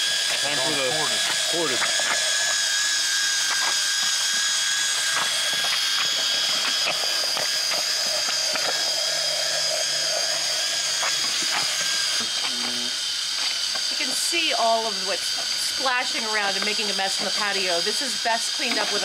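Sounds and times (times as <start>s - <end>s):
cordless drill motor whine: 0.0s - 19.0s.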